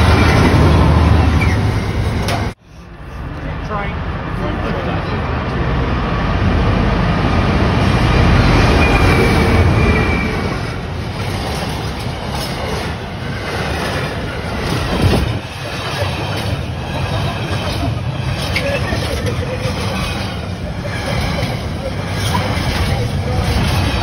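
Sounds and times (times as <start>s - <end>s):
freight train wheels clattering: 7.8s - 24.0s.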